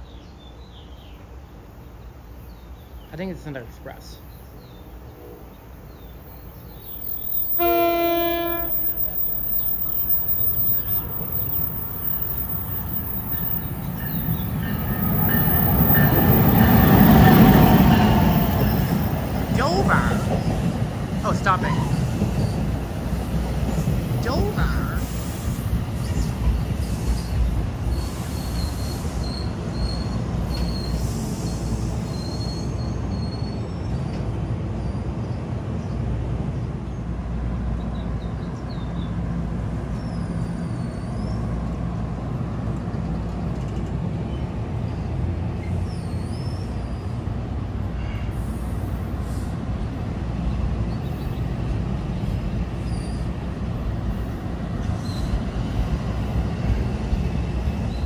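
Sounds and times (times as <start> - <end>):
train wheels rumbling on rails: 6.1 - 58.0.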